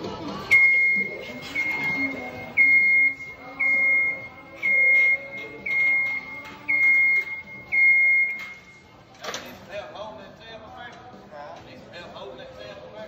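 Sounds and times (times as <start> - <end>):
lift warning alarm beeping: 0.4 - 9.0.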